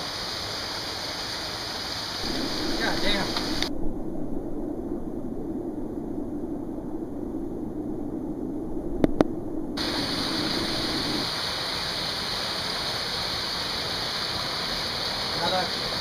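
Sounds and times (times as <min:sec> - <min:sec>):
waterfall pouring over rocks: 0:00.0 - 0:03.7, 0:09.8 - 0:16.0.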